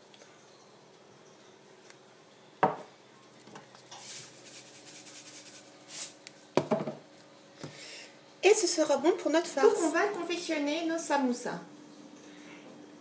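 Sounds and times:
pepper mill grinding: 3.8s - 6.3s.

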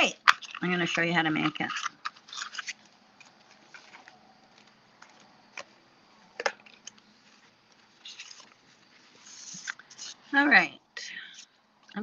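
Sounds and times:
soft paper brushing: 7.0s - 10.3s.

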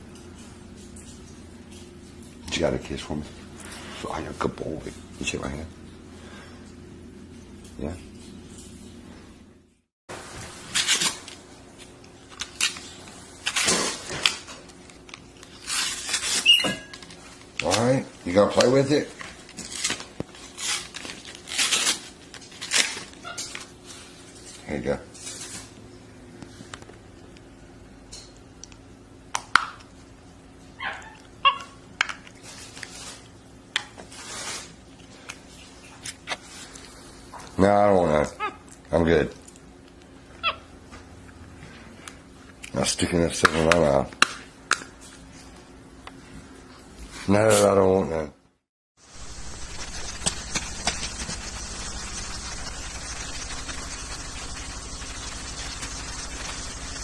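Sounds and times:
packaging crinkling and tearing: 10.7s - 24.5s, 49.1s - 57.0s
monkey squeaks: 16.4s - 16.9s
scratchy rustling: 49.0s - 57.0s.

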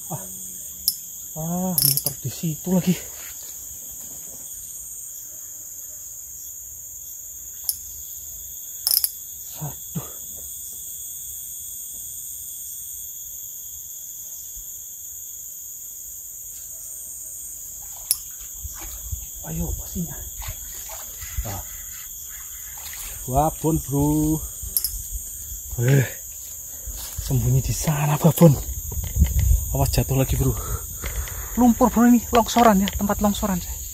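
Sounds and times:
insect chorus drone: 0.0s - 33.9s
sharp clicks: 8.9s - 9.1s.

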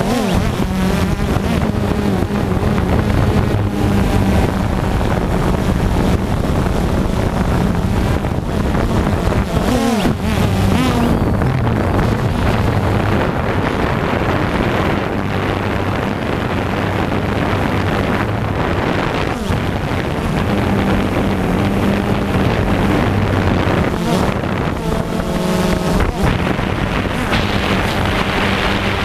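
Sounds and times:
quadcopter motors whirring: 0.0s - 29.0s
rushing wind noise: 0.0s - 29.0s.

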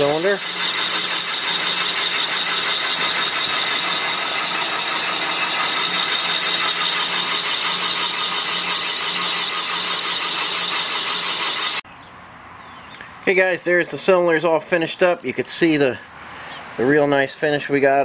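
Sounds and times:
boring bar hum and whine: 0.0s - 11.8s.

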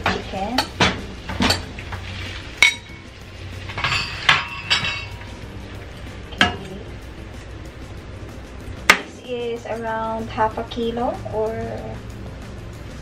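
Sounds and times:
utensils knocking on frying pan: 0.0s - 2.0s, 3.7s - 5.3s.

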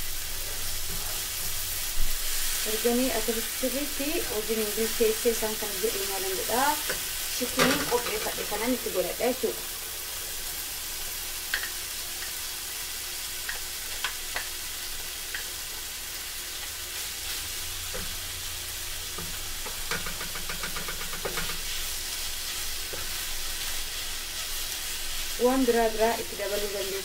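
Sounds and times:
food sizzling in a frying pan: 0.0s - 27.0s
wooden spatula scraping a pan: 19.2s - 25.3s.

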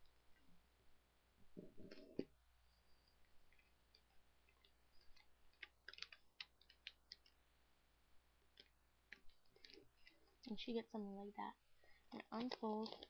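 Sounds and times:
paper crackling as folded: 5.1s - 7.3s, 12.1s - 13.0s.

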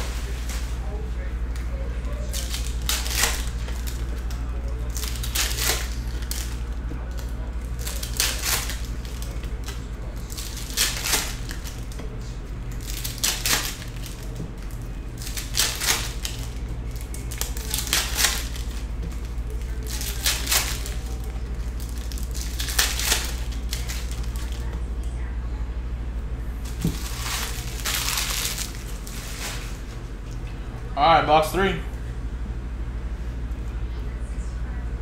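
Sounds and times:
foil wrappers crinkling: 0.0s - 24.9s, 26.6s - 30.1s
steady low hum: 0.0s - 35.0s
cards being handled: 1.5s - 12.0s, 12.7s - 24.7s, 26.6s - 30.0s.

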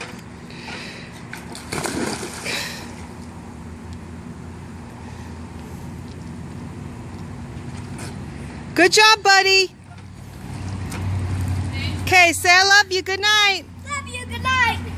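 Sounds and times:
steady low hum: 0.0s - 10.6s
water sloshing: 1.0s - 3.3s
splash into pool: 1.4s - 3.0s.

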